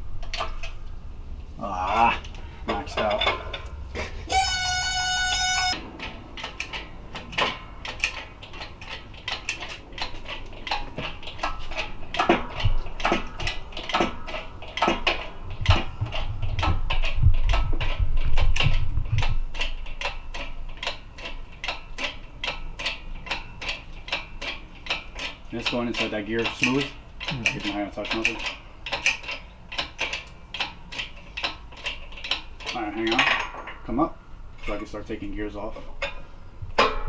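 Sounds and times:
low thumps and rumbling: 0:10.9 - 0:20.9.

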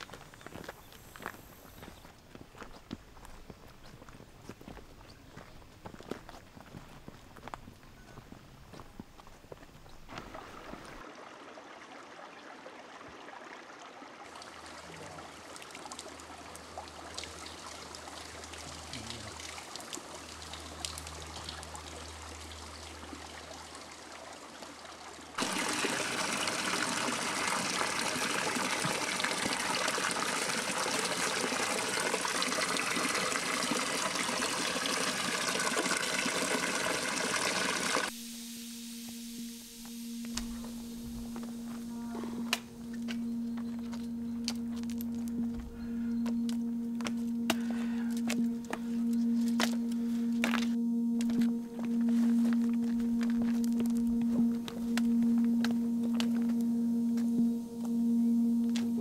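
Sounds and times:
water running from a fountain: 0:10.1 - 0:38.1
faint low hum: 0:38.1 - 0:59.0.

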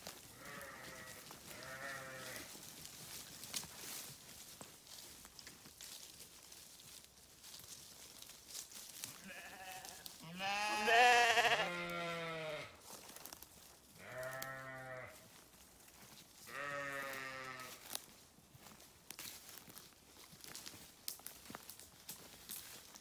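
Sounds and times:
sheep bleating: 0:00.3 - 0:02.5, 0:09.2 - 0:12.8, 0:14.0 - 0:15.2, 0:16.5 - 0:17.8.

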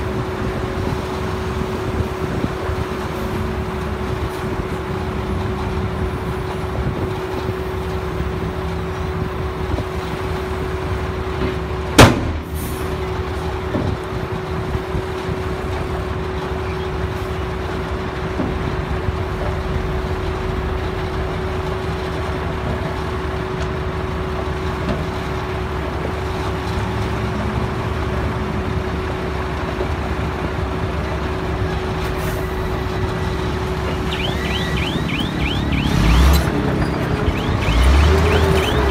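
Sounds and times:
dump truck diesel engines running: 0:00.0 - 0:38.9
sharp bang: 0:12.0 - 0:12.6.

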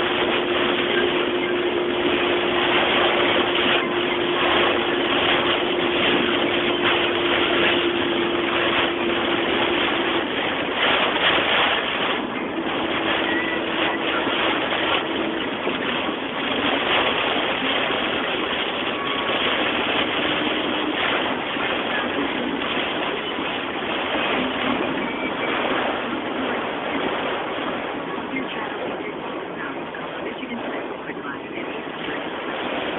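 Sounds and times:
faint hum: 0:00.0 - 0:32.9
heavy rain on car roof: 0:02.5 - 0:23.6, 0:28.5 - 0:31.8.

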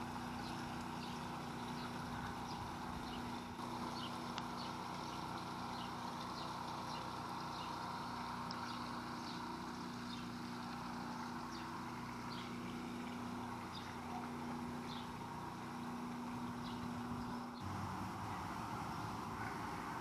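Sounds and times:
mechanical hum: 0:00.0 - 0:20.0.

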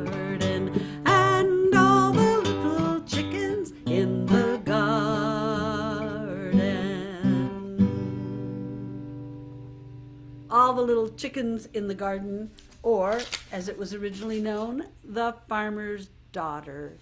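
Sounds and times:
woman singing folk song: 0:00.0 - 0:09.1, 0:10.5 - 0:16.9
acoustic guitar: 0:00.0 - 0:12.1.

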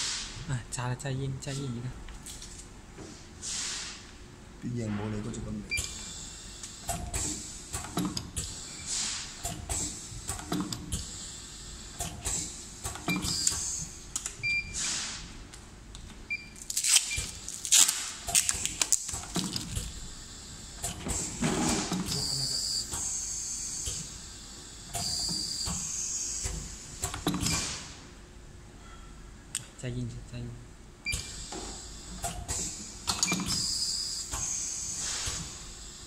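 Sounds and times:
short air hisses: 0:00.0 - 0:00.4, 0:03.4 - 0:04.1, 0:14.8 - 0:15.3, 0:34.4 - 0:35.6.

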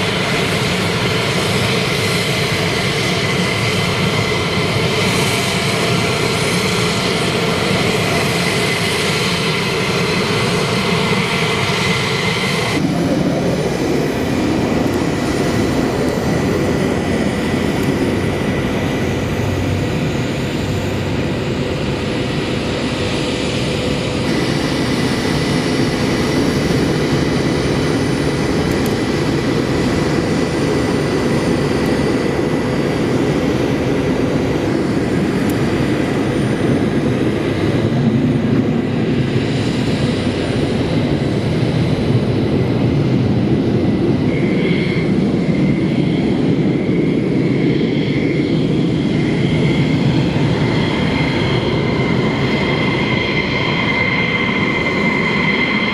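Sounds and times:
high jet whine: 0:00.0 - 0:55.9
jet engines running: 0:00.0 - 0:55.9.

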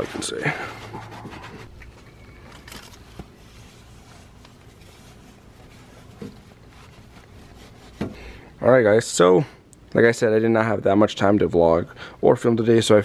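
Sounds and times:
towel rubbing on metal: 0:00.0 - 0:02.4, 0:03.2 - 0:08.5.

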